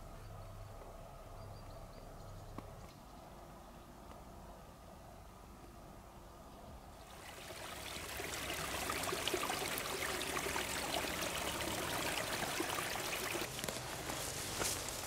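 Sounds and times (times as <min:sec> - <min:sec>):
stream trickling and splashing: 0:07.0 - 0:15.0.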